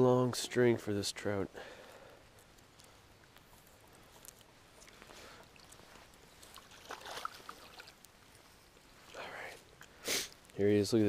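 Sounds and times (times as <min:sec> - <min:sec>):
water splashing and dripping: 0:06.4 - 0:08.1.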